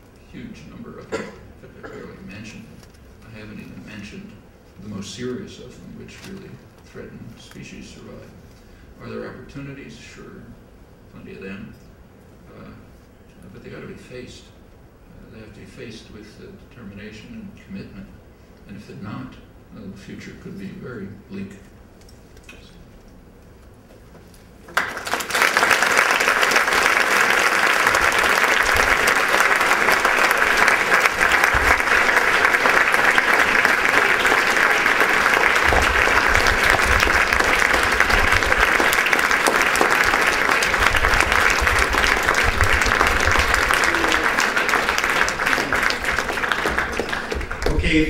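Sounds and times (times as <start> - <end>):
audience applauding: 24.7 - 48.0.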